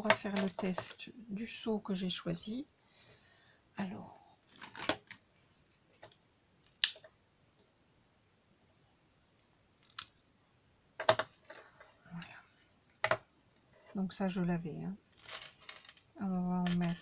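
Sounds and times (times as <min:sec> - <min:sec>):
small objects clicking on a table: 0:11.0 - 0:11.6, 0:12.9 - 0:13.3, 0:15.2 - 0:17.0.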